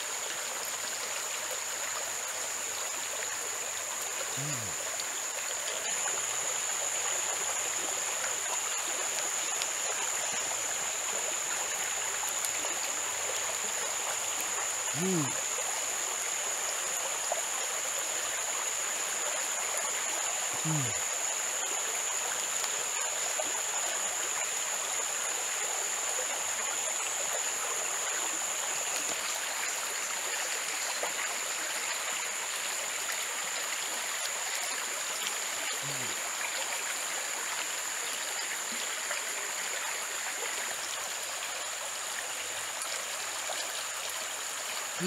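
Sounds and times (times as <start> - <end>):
stream running: 0.0 - 45.0
low falling vocal sound: 4.3 - 4.8, 14.9 - 15.4, 20.6 - 21.0, 35.8 - 36.2.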